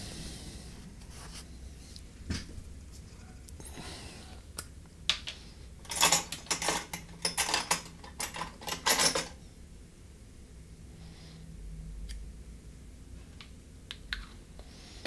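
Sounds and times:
faint hum: 0:00.0 - 0:15.0
tools clinking and rattling: 0:05.8 - 0:09.4.

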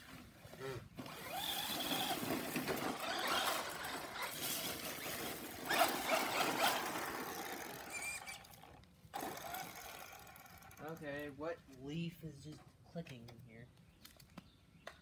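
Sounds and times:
tyres rushing over ground: 0:00.9 - 0:10.7
toy truck motor whining: 0:01.0 - 0:11.0.

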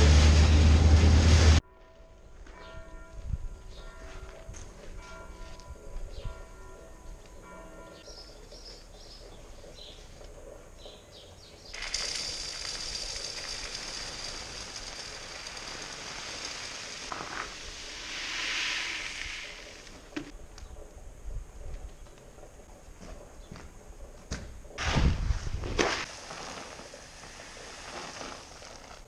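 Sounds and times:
faint birds chirping: 0:06.0 - 0:11.9
sand pouring: 0:11.7 - 0:20.2, 0:24.8 - 0:29.0.

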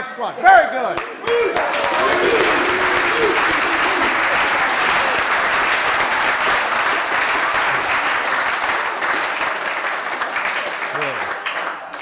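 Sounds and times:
group applauding: 0:00.9 - 0:12.0.

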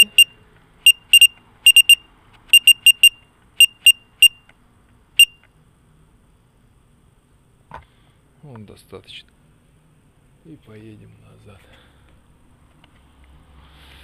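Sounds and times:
high-pitched electronic beeps: 0:00.0 - 0:04.4, 0:05.2 - 0:05.4.

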